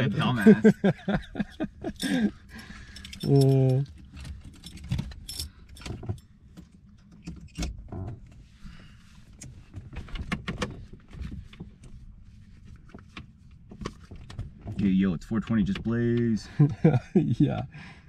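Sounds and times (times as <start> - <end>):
light clicks and rattles: 1.0 - 8.4.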